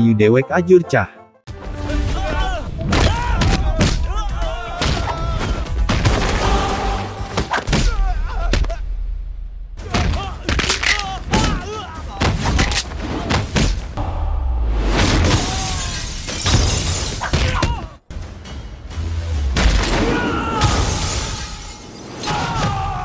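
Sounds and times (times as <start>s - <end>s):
music: 0.0s - 8.3s, 17.2s - 23.0s.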